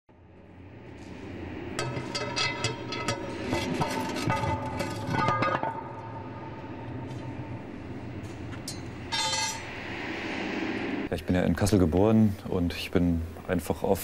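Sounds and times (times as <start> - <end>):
low steady rumble: 0.1 - 13.4.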